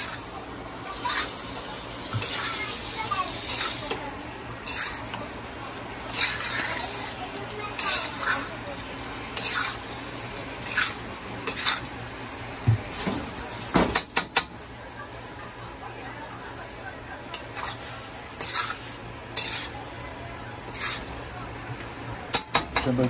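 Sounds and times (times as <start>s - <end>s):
frying sizzle: 0.0s - 23.0s
utensil scraping a cooking pot: 4.6s - 5.2s, 6.0s - 8.6s, 9.3s - 11.9s, 17.3s - 19.9s, 20.6s - 21.2s.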